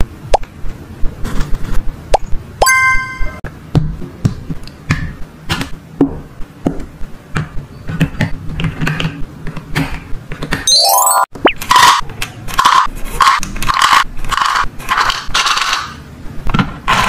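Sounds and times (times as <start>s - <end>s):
rising chime sound effect: 2.6s - 3.4s, 10.7s - 11.6s
plastic toy pieces clicking: 12.5s - 17.0s.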